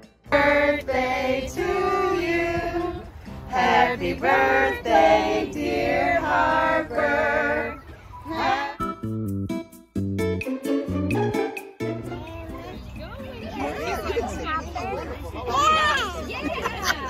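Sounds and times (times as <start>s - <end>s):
choir-like voices singing: 0.3s - 8.9s.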